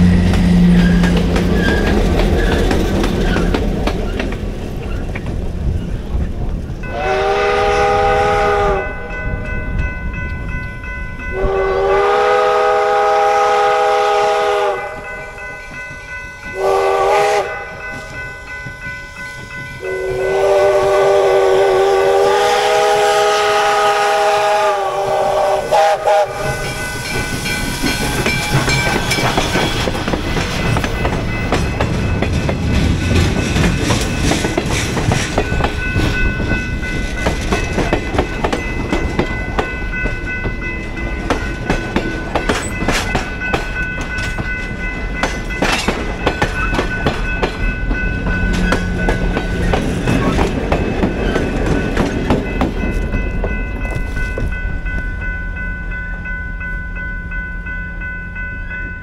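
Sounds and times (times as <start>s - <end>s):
train rumbling past: 0.0s - 59.0s
steam whistle: 6.8s - 9.2s, 11.3s - 15.3s, 16.6s - 17.8s, 19.8s - 27.2s
high ringing tones: 26.1s - 32.4s.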